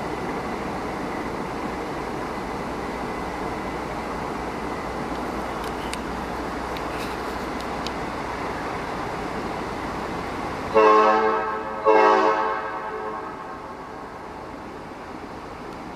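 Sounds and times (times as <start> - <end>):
steady rushing noise: 0.0 - 11.8
train whistle blasts: 10.7 - 13.7.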